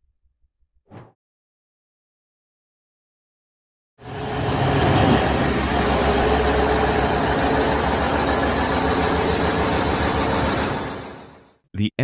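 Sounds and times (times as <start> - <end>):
large diesel engine running: 4.0 - 11.4.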